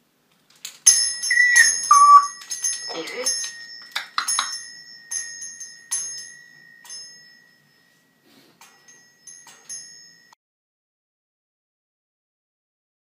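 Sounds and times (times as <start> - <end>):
small metal bell ringing: 0.8 - 10.4.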